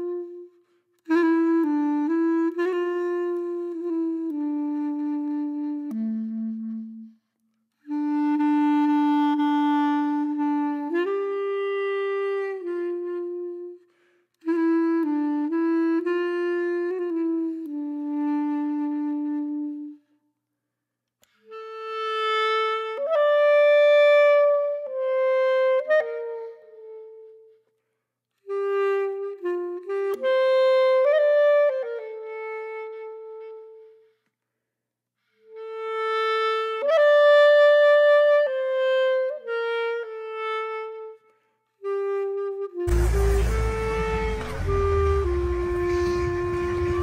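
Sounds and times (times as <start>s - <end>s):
wind instrument melody: 0.0s - 20.2s, 21.2s - 34.3s, 35.3s - 47.0s.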